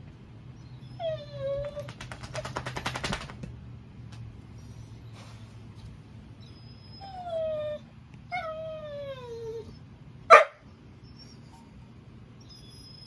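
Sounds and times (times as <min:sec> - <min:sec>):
dog whining: 0:00.6 - 0:02.4, 0:06.4 - 0:09.9, 0:11.0 - 0:11.8, 0:12.4 - 0:13.0
dog barking: 0:10.3 - 0:10.6.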